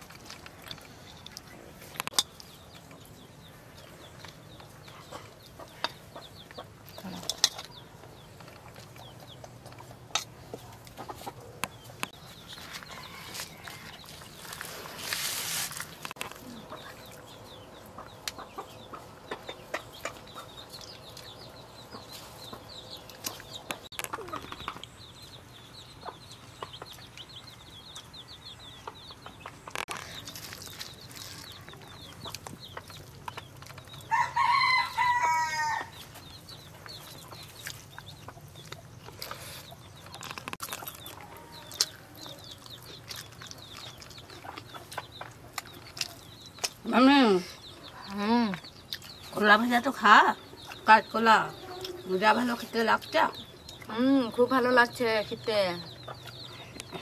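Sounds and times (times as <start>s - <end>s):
rooster crowing: 12.9s - 14.1s, 34.1s - 36.0s.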